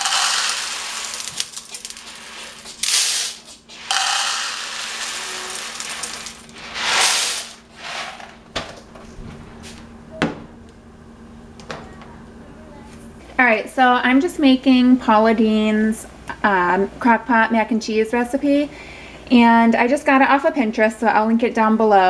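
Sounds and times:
dry pasta rattling: 0.0 - 7.8.

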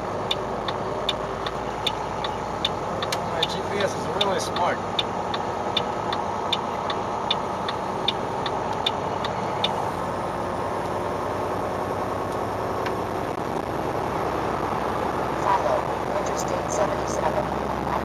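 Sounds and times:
turn signal clicking: 0.0 - 10.0, 12.2 - 13.0
truck diesel engine and road noise: 0.0 - 18.0.

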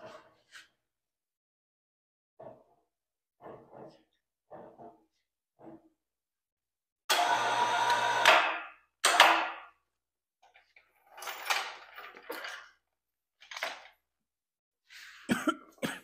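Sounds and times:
electric hoist motor: 7.1 - 9.3.

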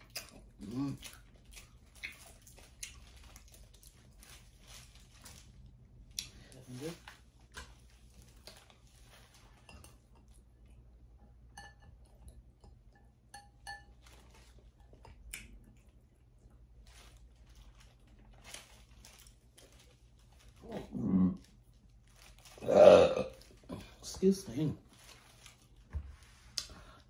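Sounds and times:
quiet chewing: 0.0 - 11.4, 13.9 - 22.6, 23.2 - 24.1, 24.9 - 27.0
clinks against glass bowl: 11.5 - 12.1, 12.9 - 14.0.

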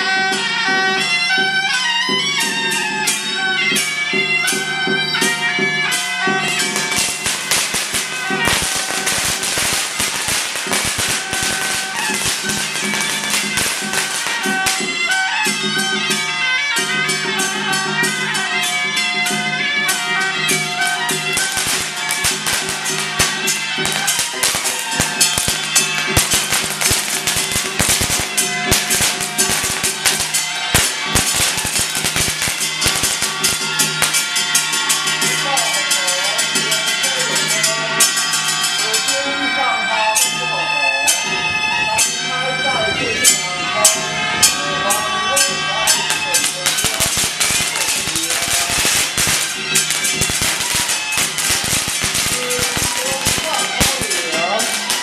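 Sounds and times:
ritual wind instrument music: 0.0 - 55.0
firecrackers popping: 1.0 - 39.1, 45.3 - 55.0.

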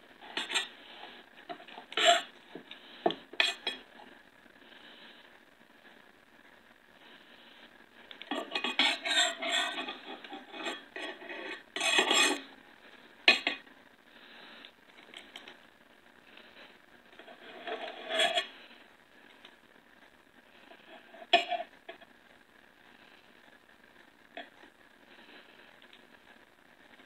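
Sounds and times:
knife scraping ceramic plate: 0.3 - 0.7, 1.5 - 2.3, 3.1 - 3.8, 8.3 - 12.5, 13.3 - 13.6, 17.2 - 18.6, 21.1 - 21.7.

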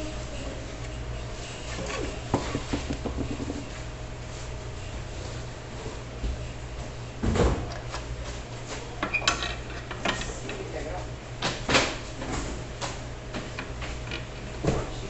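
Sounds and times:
clicks and knocks: 2.4 - 3.7.

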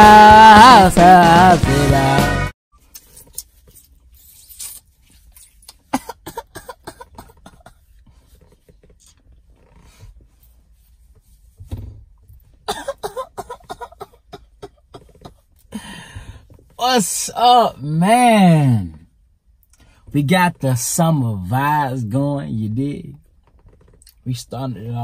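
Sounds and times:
man's throat and mouth noises: 5.5 - 9.2, 12.7 - 15.5.

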